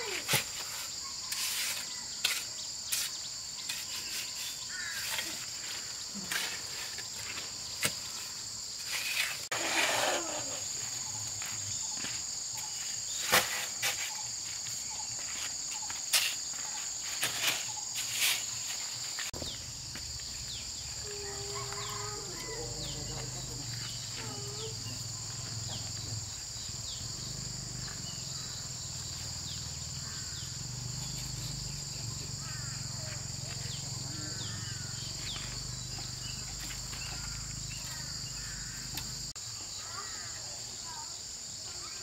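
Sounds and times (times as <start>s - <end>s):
scraping rustle: 0.0s - 11.1s, 13.1s - 19.4s
insect chorus: 0.0s - 42.0s.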